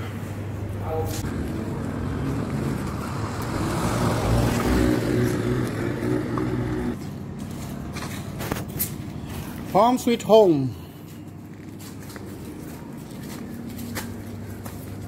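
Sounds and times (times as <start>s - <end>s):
car engine and road noise: 0.4s - 9.3s.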